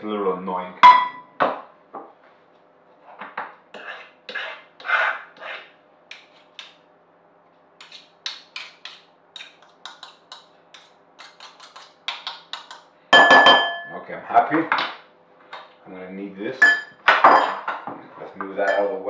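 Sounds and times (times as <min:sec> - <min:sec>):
metal utensil scraping glass bowl: 0:03.8 - 0:06.4.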